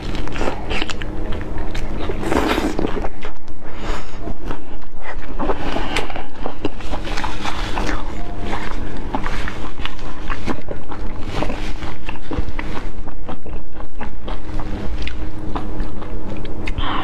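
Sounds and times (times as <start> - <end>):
chewing with wet mouth sounds: 0.0 - 17.0.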